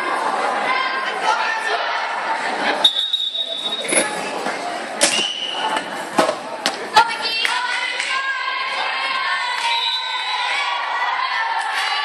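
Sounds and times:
girls shouting and cheering: 0.0 - 2.5, 6.9 - 12.0.

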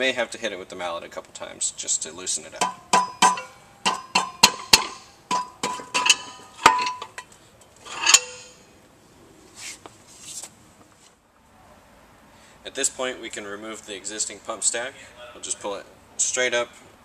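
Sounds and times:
mallet striking metal: 2.6 - 7.1
metal clank: 2.6 - 8.6.

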